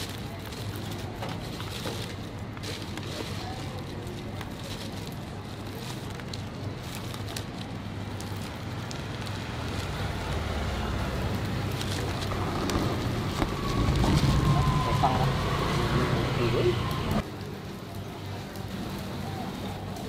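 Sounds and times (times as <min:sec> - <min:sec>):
crackles of fish skin peeling: 0:00.0 - 0:15.9
street traffic rumble: 0:00.0 - 0:20.0.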